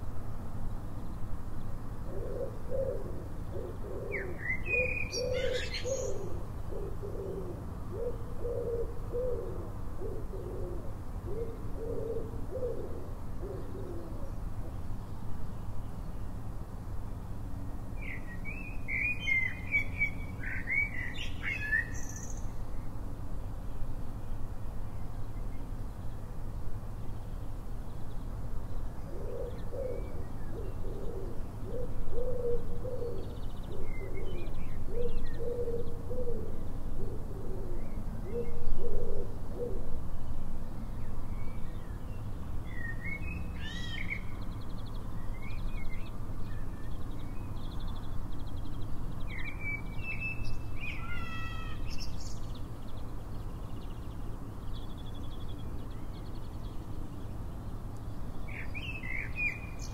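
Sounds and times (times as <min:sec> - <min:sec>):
songbirds chirping: 0:00.0 - 0:59.9
pigeon cooing: 0:02.1 - 0:14.4, 0:29.1 - 0:39.9.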